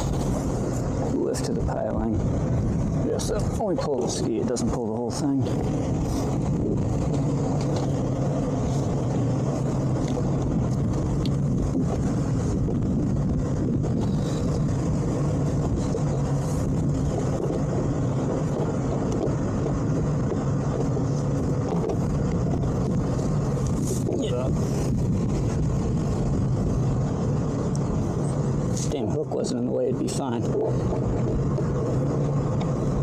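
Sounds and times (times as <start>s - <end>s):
outboard engine idling: 0.0s - 33.0s.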